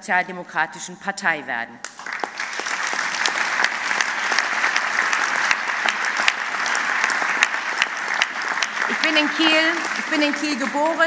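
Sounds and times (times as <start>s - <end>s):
audience applauding: 1.8s - 11.0s.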